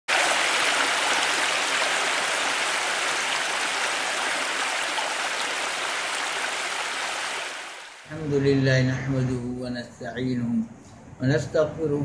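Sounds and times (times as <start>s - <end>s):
water rushing: 0.0s - 8.4s.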